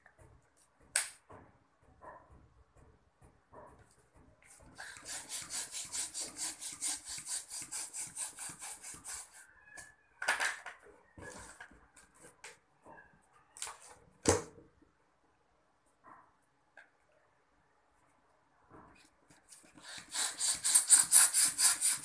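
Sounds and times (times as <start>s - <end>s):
hand balloon pump strokes: 4.5s - 9.4s, 19.4s - 22.0s.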